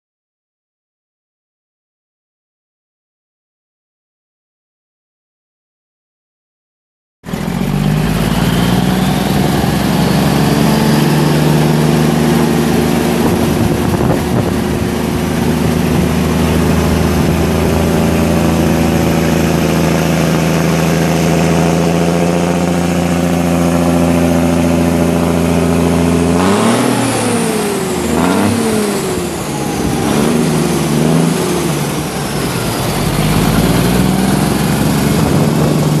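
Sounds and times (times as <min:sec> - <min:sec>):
truck diesel engine idling and revving: 0:07.3 - 0:36.0.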